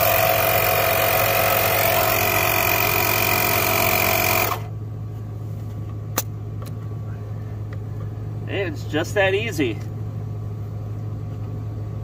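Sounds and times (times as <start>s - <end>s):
air compressor whining: 0.0s - 4.8s.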